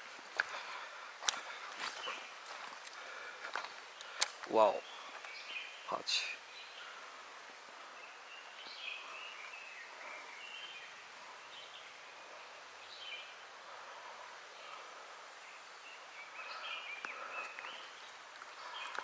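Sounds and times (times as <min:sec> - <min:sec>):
forest background noise: 0:00.0 - 0:19.0
bird chirps: 0:15.5 - 0:19.0.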